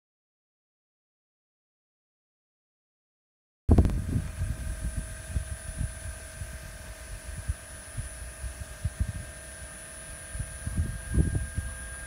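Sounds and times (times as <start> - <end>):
electric hydraulic pump whining: 3.7 - 12.0
wind buffeting microphone: 3.7 - 12.0.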